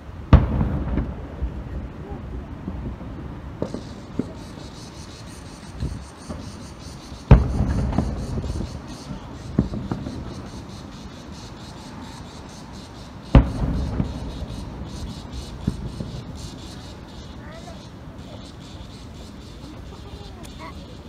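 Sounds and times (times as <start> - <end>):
firework shells bursting: 0.3 - 1.9, 2.6 - 11.0, 13.3 - 17.4.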